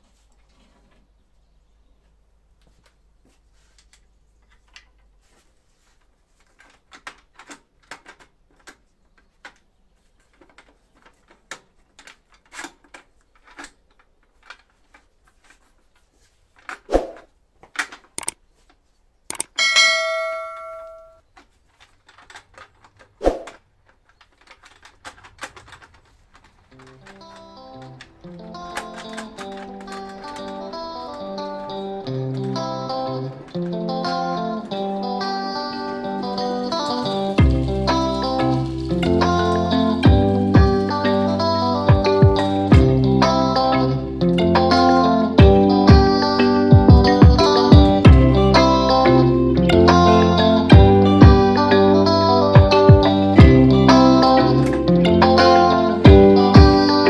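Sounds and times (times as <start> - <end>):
metal parts clicking and tapping: 6.4 - 15.7, 17.6 - 18.4, 19.3 - 42.9
metallic clang: 19.3 - 21.2.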